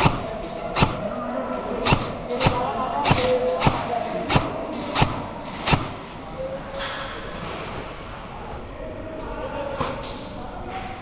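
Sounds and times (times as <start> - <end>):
airsoft gun shots: 0.0 - 1.1, 1.8 - 6.0.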